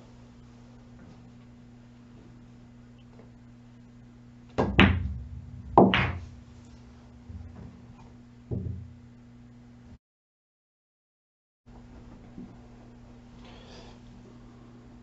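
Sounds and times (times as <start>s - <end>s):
cue striking ball: 4.5s - 9.0s
pool balls clicking: 4.5s - 9.0s
ball dropping into pocket: 4.6s - 8.8s
ball knocking off cushions: 4.6s - 9.0s.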